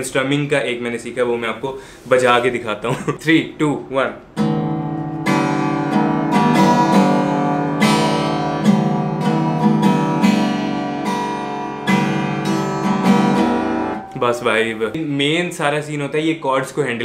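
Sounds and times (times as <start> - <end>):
acoustic guitar strumming: 4.2 - 15.4.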